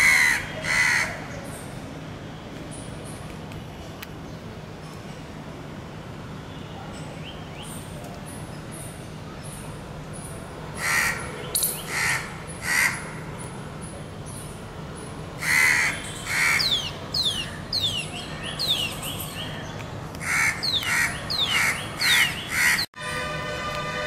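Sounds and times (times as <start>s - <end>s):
bird giving harsh calls: 15.4s - 18.9s, 20.2s - 22.9s.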